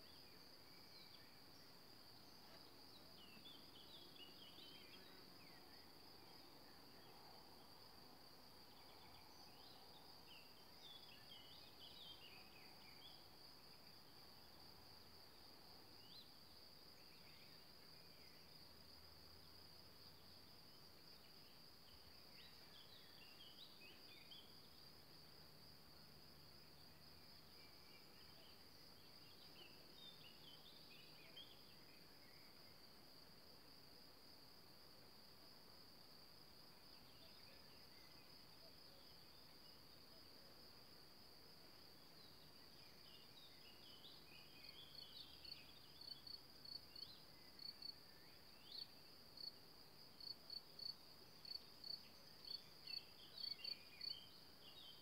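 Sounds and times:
cricket trill: 0:18.1 - 0:55.0.

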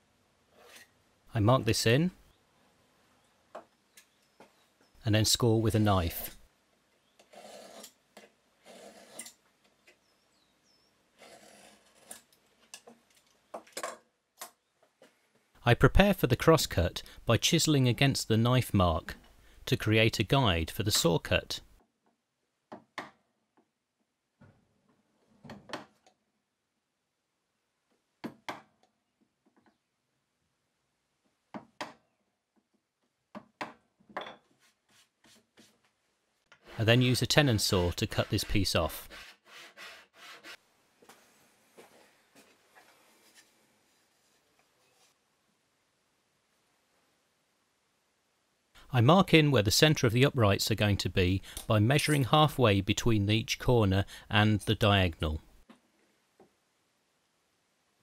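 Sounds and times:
knife scraping wood: 0:36.7 - 0:40.6.

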